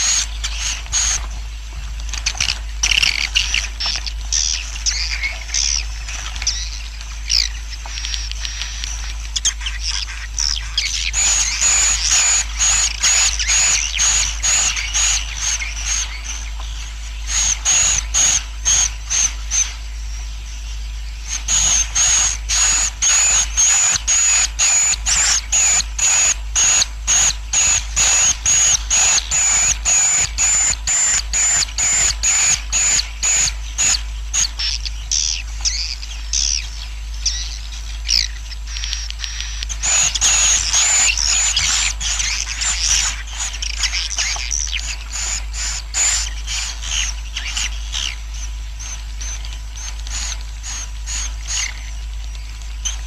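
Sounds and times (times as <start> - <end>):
steady low hum: 0.0 - 53.0
pulsing sharp chirps: 21.2 - 52.0
swiftlets twittering: 37.2 - 53.0.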